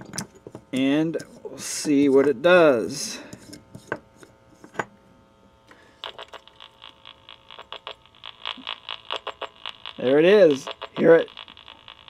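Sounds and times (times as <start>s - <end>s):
buzzing electronic pulses: 6.0s - 12.0s.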